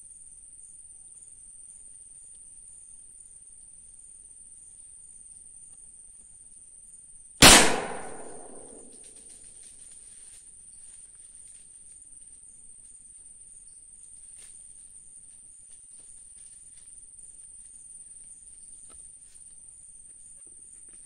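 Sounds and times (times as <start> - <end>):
gunshot with echo: 7.4 - 9.0.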